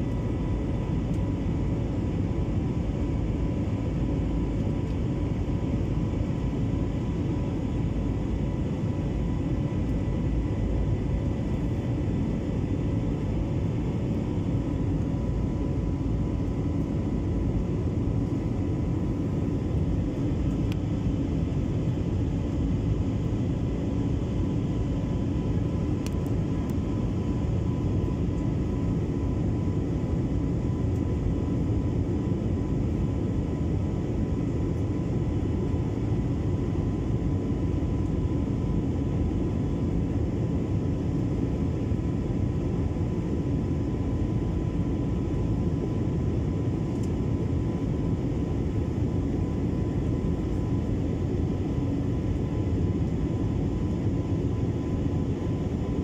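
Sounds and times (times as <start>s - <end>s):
jet engine and airflow rush: 0.0s - 56.0s.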